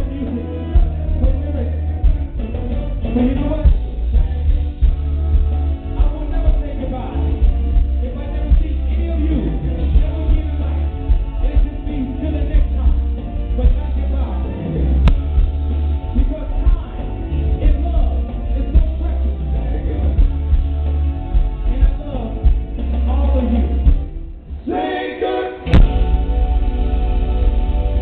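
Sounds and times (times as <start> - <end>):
soul pop band playing: 0.0 - 28.0
person singing: 24.6 - 28.0.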